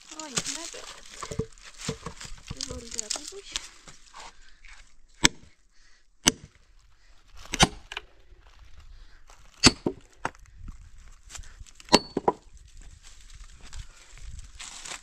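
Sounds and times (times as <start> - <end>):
axe chopping firewood: 0.2 - 3.3, 5.2 - 5.5, 6.2 - 6.6, 7.5 - 8.0, 9.6 - 10.1, 11.8 - 12.4.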